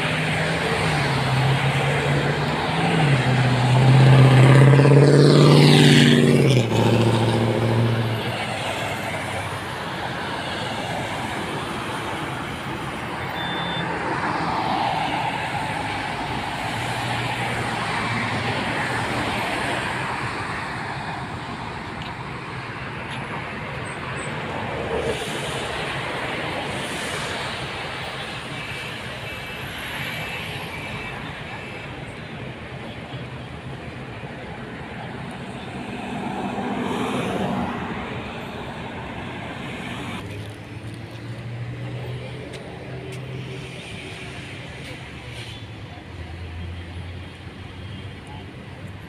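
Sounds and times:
cars swishing past: 0.0s - 22.2s, 34.8s - 45.8s.

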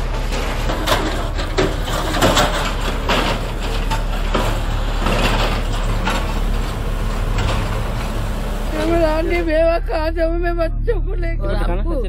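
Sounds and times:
building crashing down: 0.0s - 9.6s
falling debris clattering: 0.0s - 9.6s
diesel engine running: 0.0s - 12.0s.

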